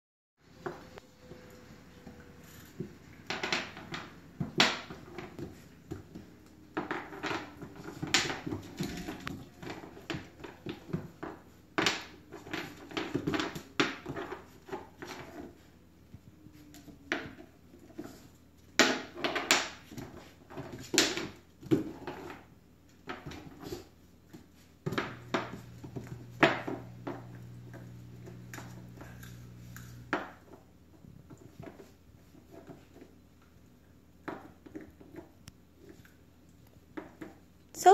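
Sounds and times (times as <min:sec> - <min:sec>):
low steady hum: 0:24.9 - 0:34.2.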